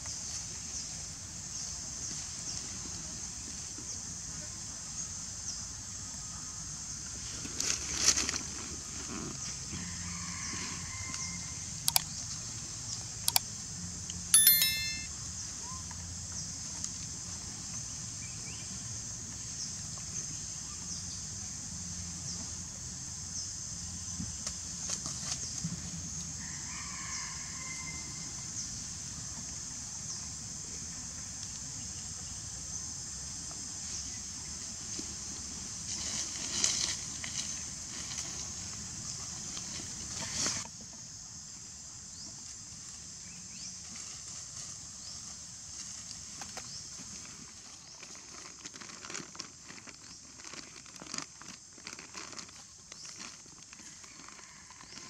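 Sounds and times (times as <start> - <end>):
short chirping call: 14.4 - 15.1.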